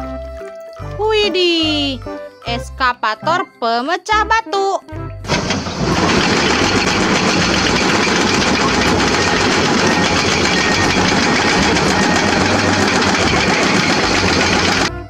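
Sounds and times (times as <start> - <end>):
excavator diesel engines rumbling: 5.3 - 14.9
mechanical clatter: 5.3 - 14.9.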